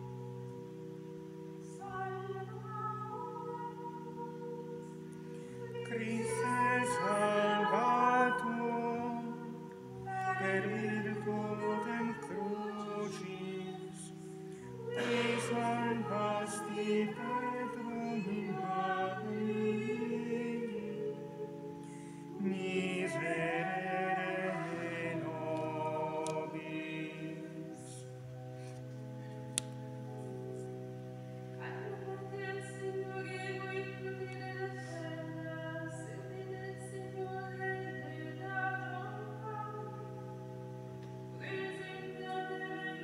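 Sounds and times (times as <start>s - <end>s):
organ chords: 0.0s - 43.0s
voices singing a chant: 5.7s - 14.2s, 14.8s - 21.4s, 22.4s - 28.0s.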